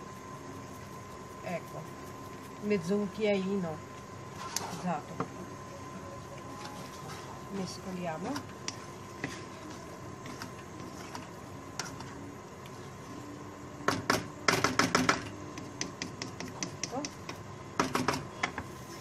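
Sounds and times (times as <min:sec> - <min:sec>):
spatula knocking and scraping pan: 0:13.9 - 0:18.7.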